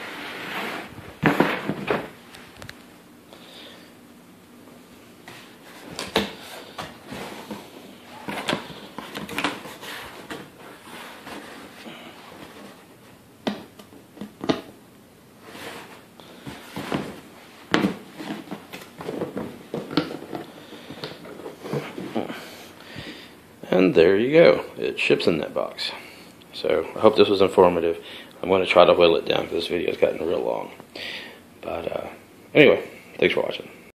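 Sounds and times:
box being handled: 5.3 - 14.8, 15.5 - 22.2.

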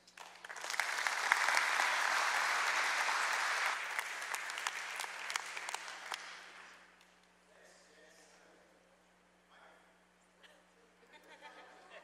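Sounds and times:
congregation clapping: 0.0 - 7.1.

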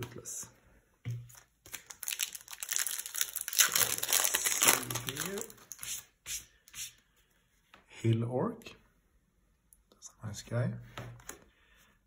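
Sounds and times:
wrapper tearing and crinkling: 1.7 - 6.0.

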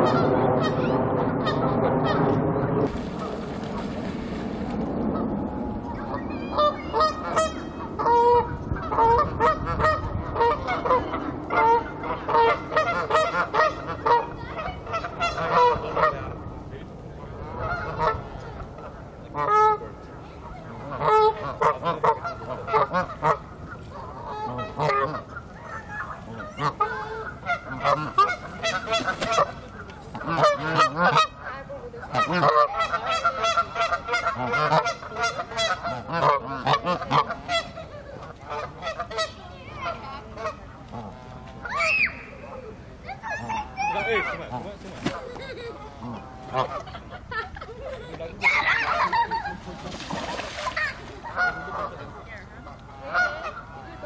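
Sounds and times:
geese honking: 6.1 - 16.3, 17.5 - 18.4, 20.5 - 44.7, 45.9 - 47.1, 50.0 - 54.0.

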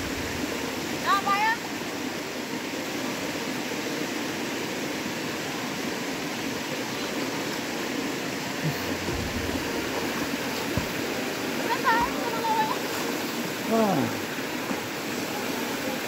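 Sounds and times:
river water rushing over rocks: 0.0 - 16.0
faint low bumps: 8.8 - 11.1.

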